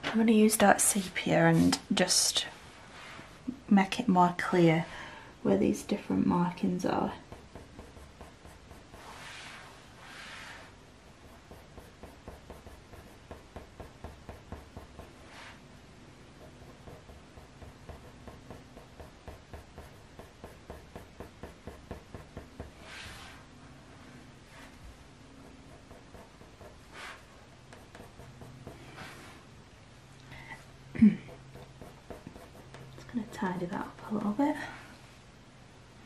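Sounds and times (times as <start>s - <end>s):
coloured pencil scratching on paper: 6.9s - 15.6s, 16.2s - 23.4s, 24.5s - 29.4s, 31.3s - 34.0s.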